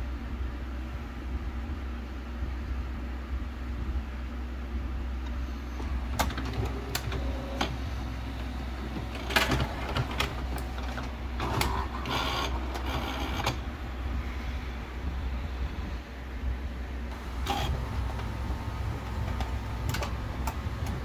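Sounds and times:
printer motor whirring and clatter: 0:05.2 - 0:14.4, 0:17.1 - 0:21.0
printer clicks: 0:05.8 - 0:13.6, 0:17.1 - 0:21.0.

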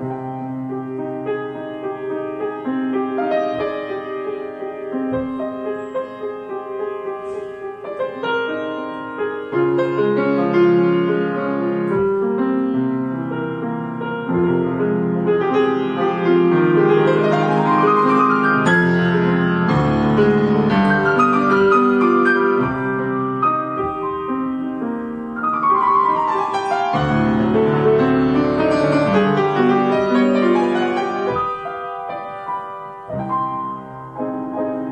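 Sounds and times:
grand piano playing: 0:00.0 - 0:34.9.

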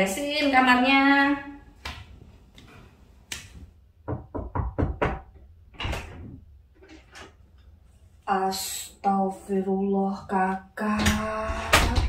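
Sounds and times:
knocking on door: 0:04.0 - 0:05.3.

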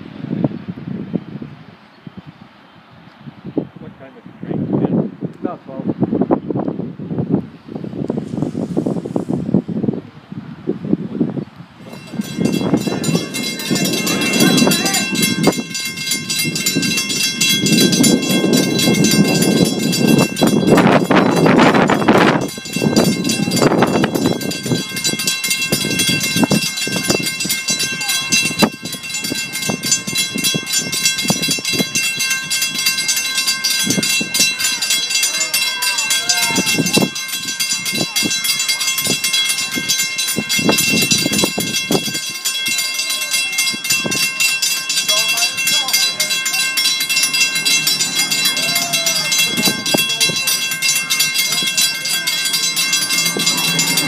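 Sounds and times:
steam hiss: 0:08.2 - 0:09.5
steam locomotive chugging: 0:11.9 - 0:54.0.

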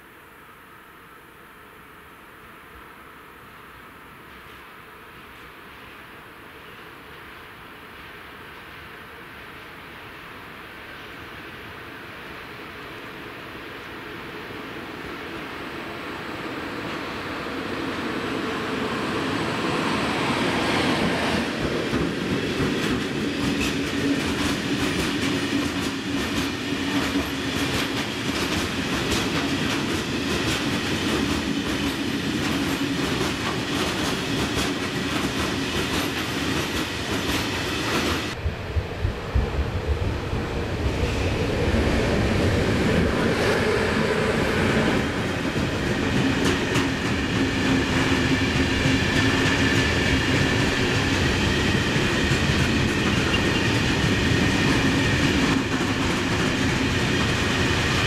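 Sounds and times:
train wheels rumbling: 0:16.3 - 0:58.0.

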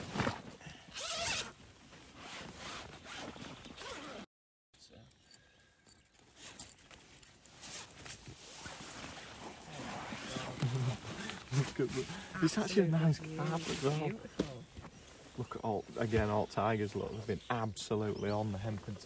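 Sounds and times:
fabric rustling: 0:00.0 - 0:04.0, 0:06.4 - 0:15.4
zip rasping open: 0:00.0 - 0:04.3, 0:07.6 - 0:12.3.

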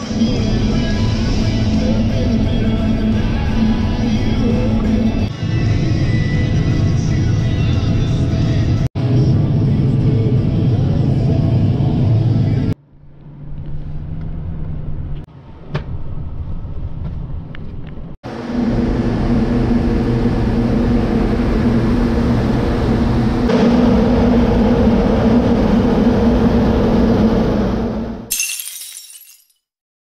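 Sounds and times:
engine hum inside truck cab: 0:08.0 - 0:23.6.

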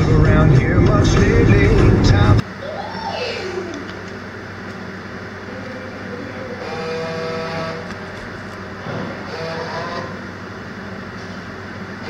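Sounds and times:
road noise: 0:00.0 - 0:02.4
vehicle engine hum: 0:00.0 - 0:12.0.

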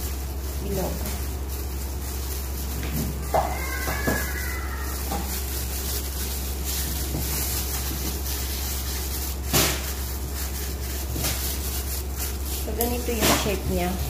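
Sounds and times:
plastic gloves rustling: 0:00.0 - 0:14.0
steady low hum: 0:00.0 - 0:14.0.

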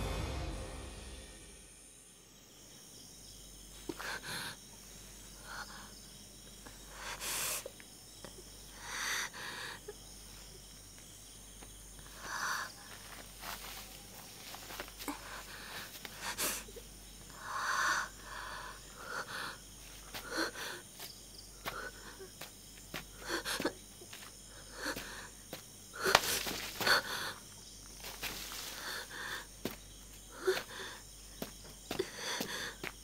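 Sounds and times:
woman gasping: 0:24.5 - 0:25.4, 0:26.0 - 0:27.5, 0:30.3 - 0:31.0, 0:31.9 - 0:33.0
dry leaves crunching underfoot: 0:26.2 - 0:26.9, 0:27.9 - 0:29.0.

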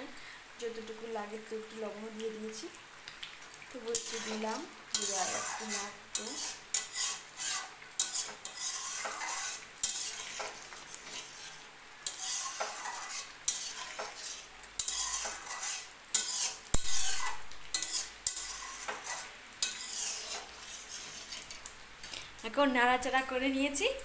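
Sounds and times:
metal spatula scraping a pan: 0:03.8 - 0:21.7
spatula clanking against pan: 0:04.0 - 0:10.6, 0:12.0 - 0:20.5.

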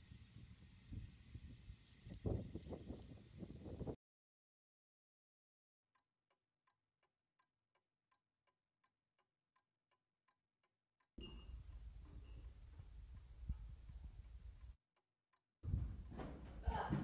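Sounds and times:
background noise: 0:11.2 - 0:14.8, 0:15.6 - 0:17.0.

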